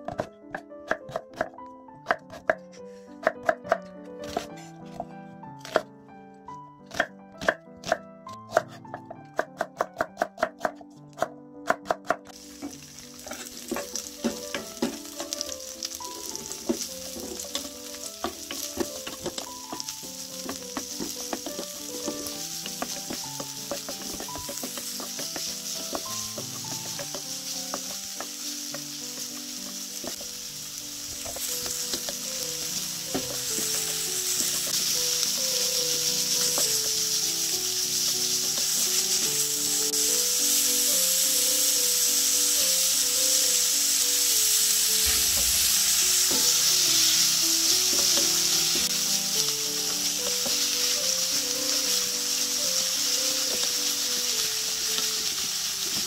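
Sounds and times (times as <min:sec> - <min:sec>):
soft background music: 0:00.0 - 0:56.0
knife chopping on wooden board: 0:06.9 - 0:12.3
vegetables sizzling in oil: 0:12.3 - 0:56.0
wooden spatula stirring: 0:12.5 - 0:30.4, 0:31.0 - 0:39.4.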